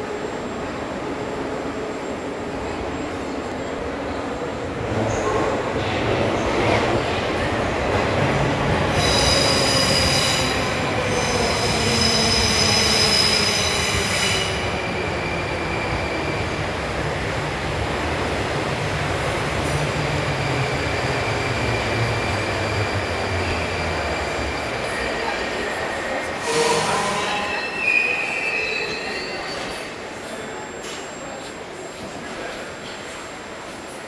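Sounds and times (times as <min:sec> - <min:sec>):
train wheels and brakes squealing: 0:08.6 - 0:16.7, 0:19.9 - 0:33.9.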